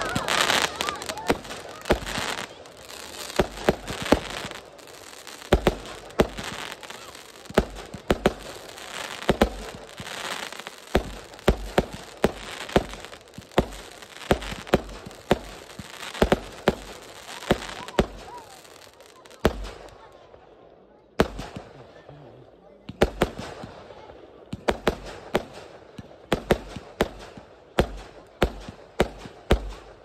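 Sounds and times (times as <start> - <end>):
fireworks hissing crackle: 0.0 - 20.1
fireworks bangs: 0.0 - 20.4, 21.2 - 22.1, 22.8 - 30.0.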